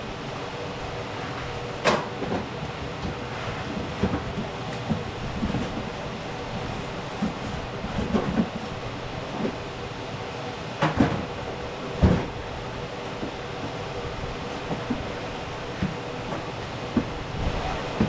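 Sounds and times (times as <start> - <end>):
steady background noise: 0.0 - 18.0
cardboard boxes knocking and thumping: 12.0 - 12.4.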